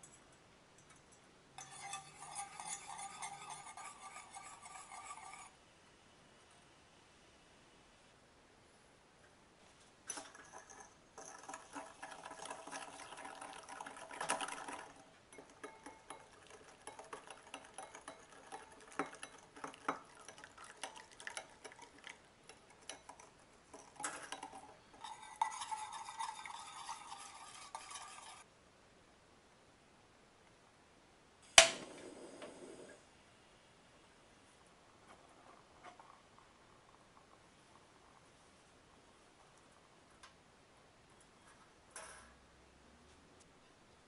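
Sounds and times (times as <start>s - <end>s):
liquid pouring: 10.1s - 28.4s
whisk clicking against glass bowl: 10.2s - 28.4s.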